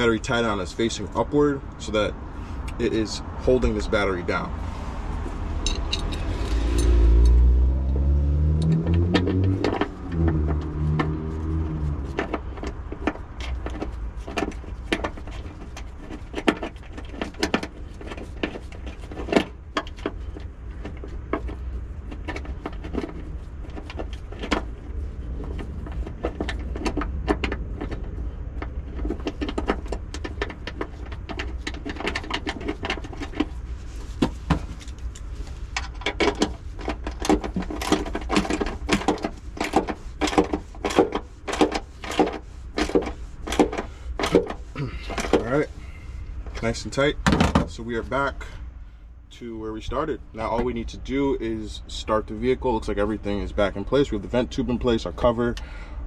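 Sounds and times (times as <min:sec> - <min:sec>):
vehicle rumble: 0:00.0 - 0:56.0
metallic clicks and clinks: 0:05.6 - 0:07.4.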